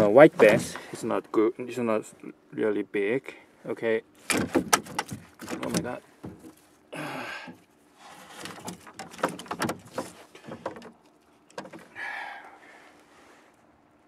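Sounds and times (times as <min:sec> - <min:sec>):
fish flopping on plastic deck: 0:08.1 - 0:12.0.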